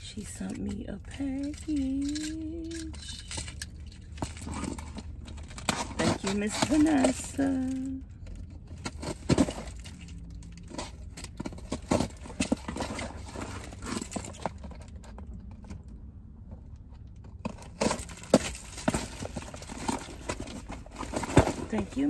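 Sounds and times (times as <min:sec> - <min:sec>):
cardboard box being opened: 0:17.5 - 0:22.0.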